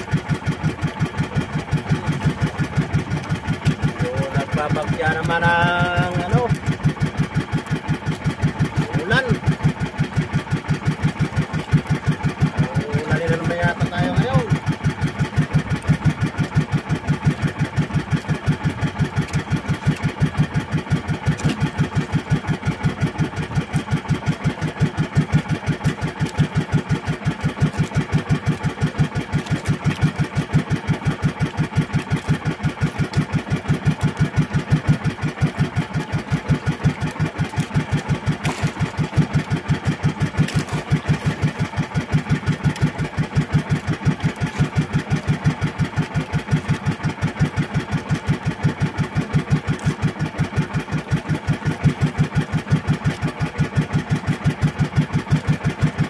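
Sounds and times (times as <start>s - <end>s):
boat engine puttering: 0.0s - 56.0s.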